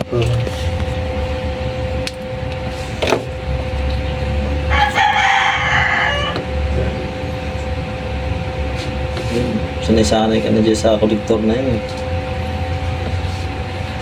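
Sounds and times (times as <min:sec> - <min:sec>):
steady hum: 0:00.0 - 0:14.0
rooster crowing: 0:04.6 - 0:06.7.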